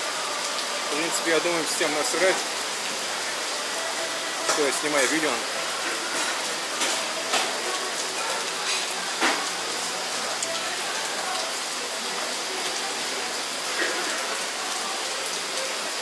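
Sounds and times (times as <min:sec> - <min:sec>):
heavy rain falling: 0:00.0 - 0:16.0.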